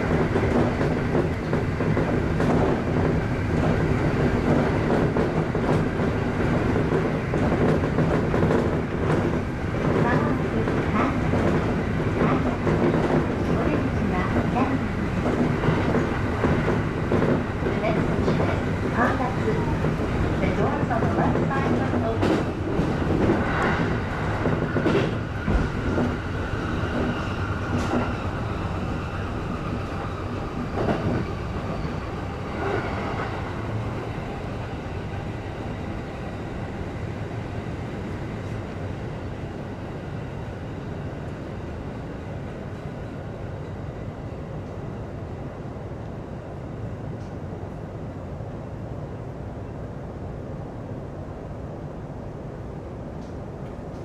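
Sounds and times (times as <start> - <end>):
train rolling rumble: 0.0 - 54.0.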